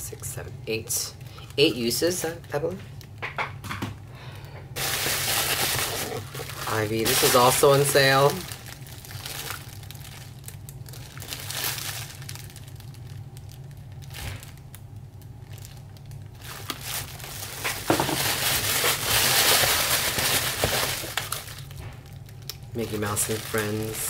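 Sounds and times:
foil packaging crinkling: 4.2s - 24.0s.

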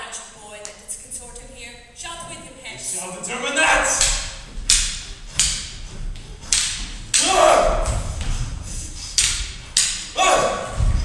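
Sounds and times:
swords clashing: 3.8s - 5.8s, 6.4s - 8.0s, 9.0s - 10.8s.

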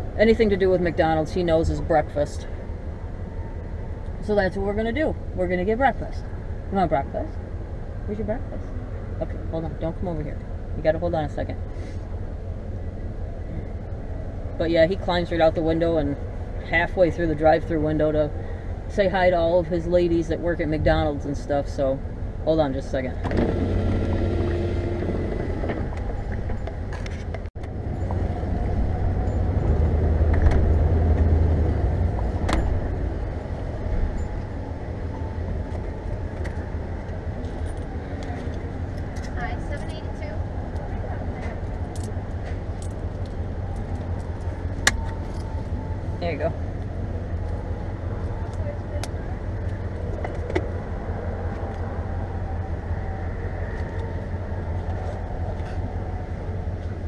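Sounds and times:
vehicle engine and road noise: 0.0s - 57.0s
light clicks and jingles: 35.6s - 45.8s.

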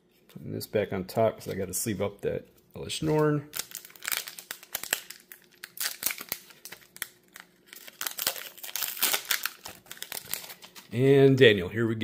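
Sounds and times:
foil wrapper crinkling and tearing: 3.0s - 11.0s.

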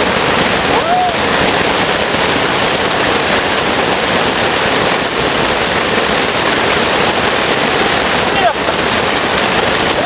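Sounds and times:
heavy rain pouring: 0.0s - 10.0s.

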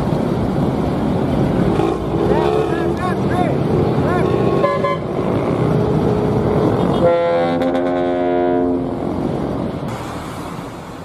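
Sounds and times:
passing traffic: 0.0s - 11.0s
bus horn blast: 4.6s - 5.2s, 6.8s - 9.0s.

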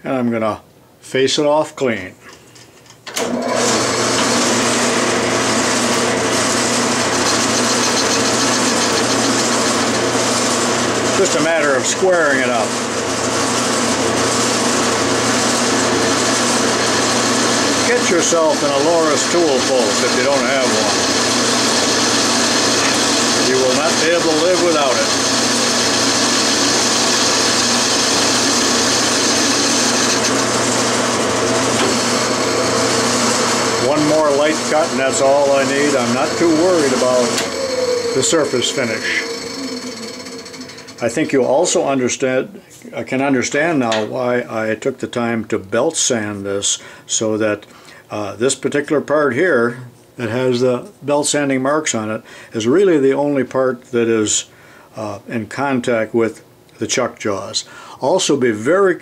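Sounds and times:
metal lathe cutting: 3.2s - 42.0s.

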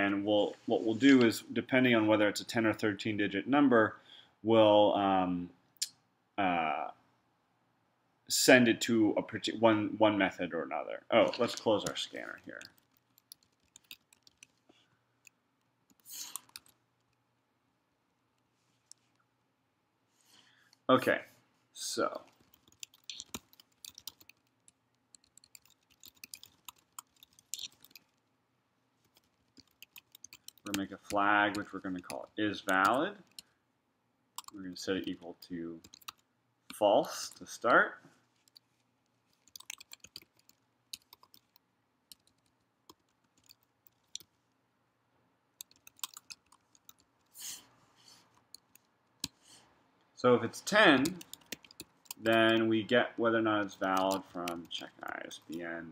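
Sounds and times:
typing on computer keyboard: 11.4s - 14.6s, 15.2s - 17.2s, 22.2s - 28.2s, 29.0s - 33.5s, 34.4s - 36.3s, 38.4s - 38.6s, 39.3s - 44.3s, 45.6s - 47.2s, 48.3s - 49.4s, 50.9s - 52.7s, 53.6s - 55.7s.

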